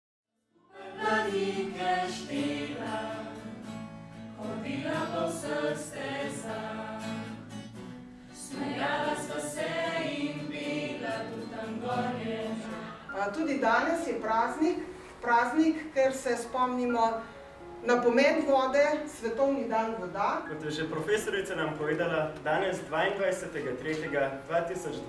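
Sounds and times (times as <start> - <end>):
mixed choir singing: 0.6 - 3.8, 4.4 - 7.6, 8.3 - 13.4.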